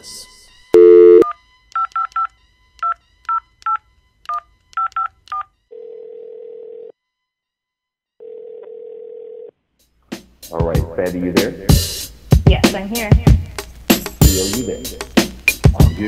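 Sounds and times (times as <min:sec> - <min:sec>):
telephone ringback tone: 0:00.8 - 0:01.3, 0:08.2 - 0:09.5.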